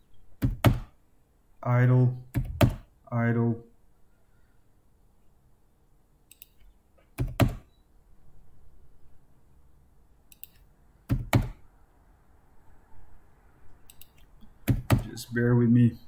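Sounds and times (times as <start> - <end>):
heavy keyboard key presses: 0.4 - 0.9, 2.3 - 2.8, 7.1 - 7.6, 11.1 - 11.6, 13.9 - 15.1
light keyboard clicks: 13.9 - 15.0.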